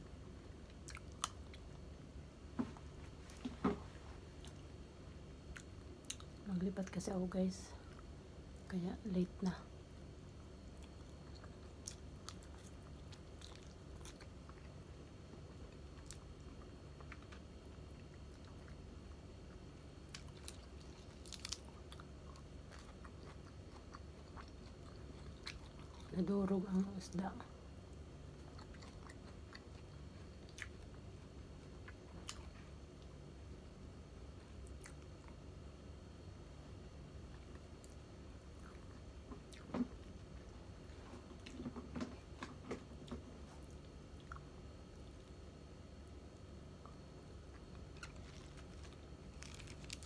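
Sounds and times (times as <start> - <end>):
low steady hum: 0.0 - 50.0
faint chewing: 0.6 - 1.8, 5.5 - 6.4, 10.7 - 26.9, 28.3 - 33.1, 37.3 - 45.4, 46.8 - 50.0.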